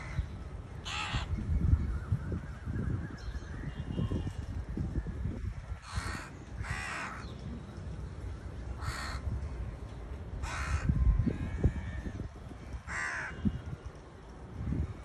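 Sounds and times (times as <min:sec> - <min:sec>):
crows cawing: 0:00.8 - 0:01.4, 0:05.8 - 0:07.3, 0:08.8 - 0:09.3, 0:10.4 - 0:12.2, 0:12.8 - 0:13.6.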